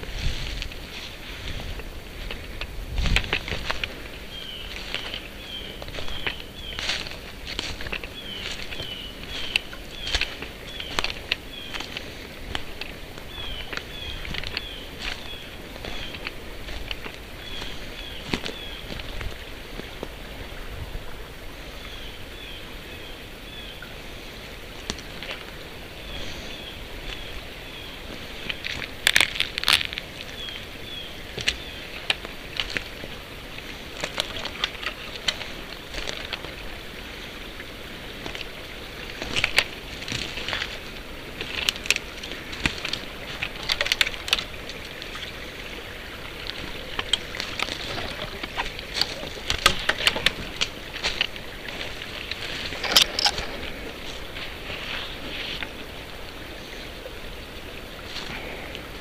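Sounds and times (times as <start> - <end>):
footsteps crunching on twigs: 0.0 - 20.3, 24.8 - 55.8
small stream rushing: 0.0 - 59.0
bird chirping: 4.2 - 12.0, 13.3 - 16.3, 17.4 - 19.0.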